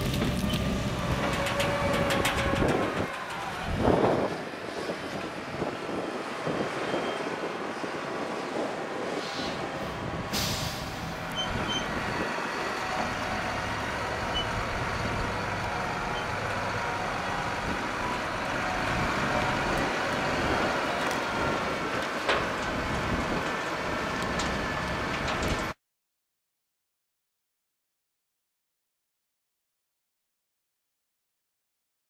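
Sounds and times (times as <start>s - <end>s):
wood chipper working: 0.0s - 4.5s, 11.1s - 25.8s
tractor diesel engines: 0.0s - 25.8s
short hiss: 10.3s - 11.1s.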